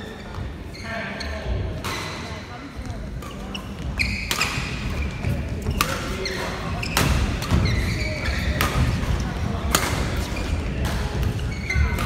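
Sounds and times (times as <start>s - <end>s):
shoes squeaking on floor: 0.0s - 2.2s, 3.2s - 9.0s, 10.0s - 12.0s
rackets hitting shuttlecock: 3.1s - 12.0s.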